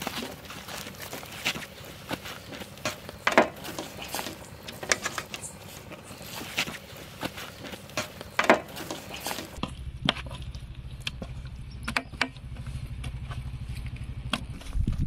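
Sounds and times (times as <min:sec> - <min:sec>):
low rumble: 0:09.6 - 0:15.0.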